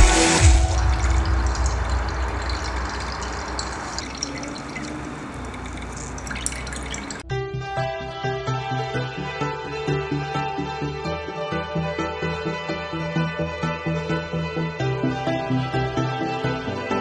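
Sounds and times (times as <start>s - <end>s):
liquid bubbling and fizzing in glass: 0.4s - 7.2s.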